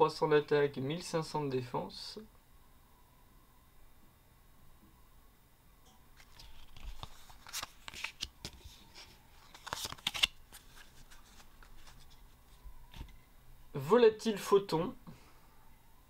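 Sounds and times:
cards rustling and flicking: 6.2s - 13.2s.

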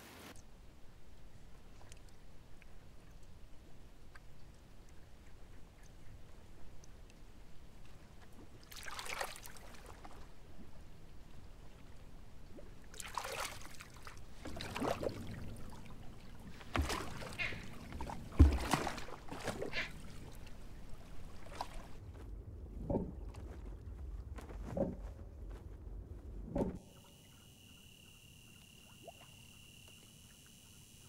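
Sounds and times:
water splashing against boat: 1.4s - 25.2s.

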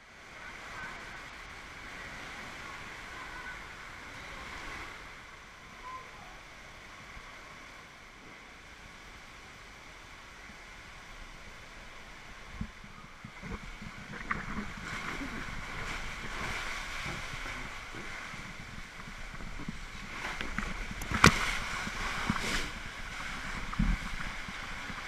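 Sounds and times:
water rushing and hissing: 0.0s - 25.0s.

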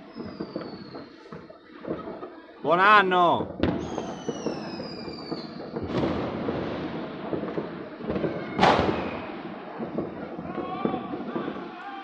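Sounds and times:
firework whistle falling: 0.0s - 1.1s, 3.7s - 6.0s, 8.3s - 9.4s
distant firecrackers crackling: 0.0s - 12.0s
loud firework bang: 3.4s - 11.8s.

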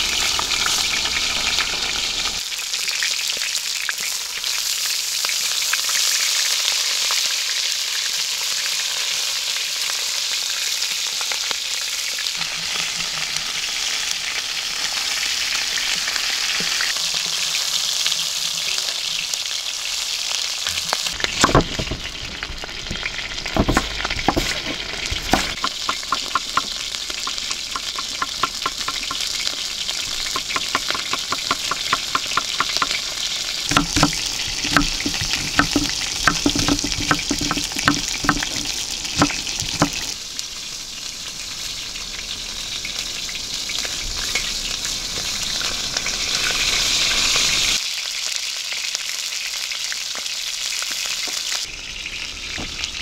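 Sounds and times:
chicken frying in a pan: 0.0s - 53.0s
knife slicing on wooden board: 23.5s - 26.7s.

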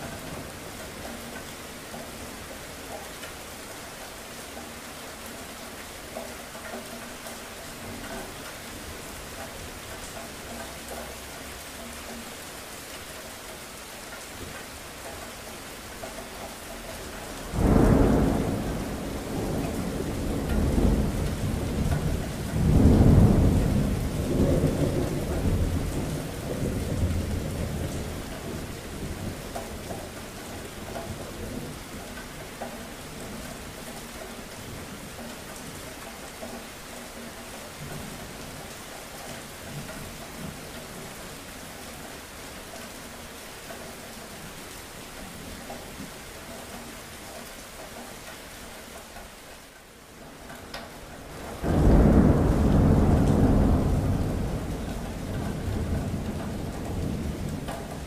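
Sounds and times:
steady rain falling: 0.0s - 58.0s
thunder rumbling: 17.4s - 30.0s, 51.2s - 58.0s.

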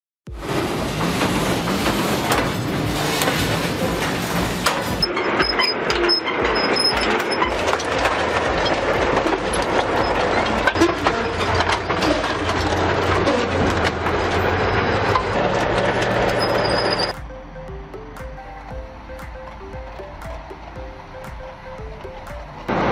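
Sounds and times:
rapid metallic clatter: 0.3s - 17.2s
heavy vehicle engine hum: 0.3s - 22.9s.

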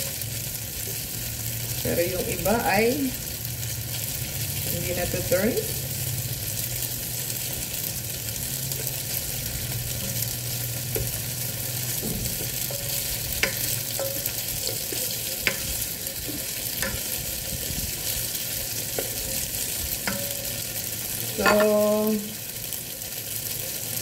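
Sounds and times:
tofu sizzling in a pot: 0.0s - 24.0s
spatula knocking against pan: 11.8s - 17.4s, 20.0s - 20.6s.

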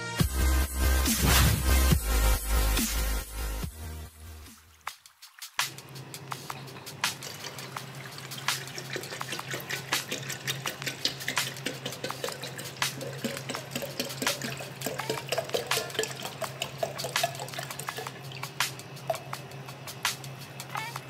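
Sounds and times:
water pouring into kettle: 4.3s - 19.7s.

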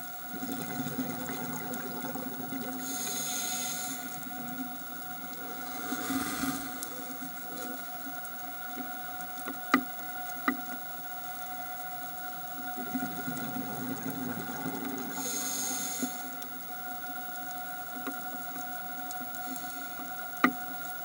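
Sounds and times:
hiss of water: 0.0s - 8.6s, 12.7s - 21.0s
steady whine: 0.0s - 21.0s
diver's exhaled bubbles: 5.4s - 7.4s.

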